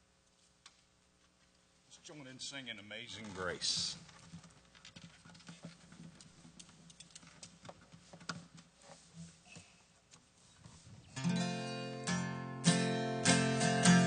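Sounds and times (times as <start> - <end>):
small clicks and rustles: 3.2 - 11.0.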